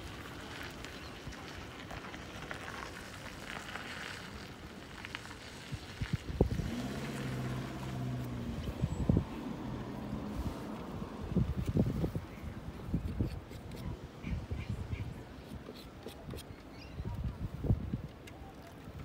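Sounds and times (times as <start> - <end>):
wind buffeting microphone: 5.4 - 18.5.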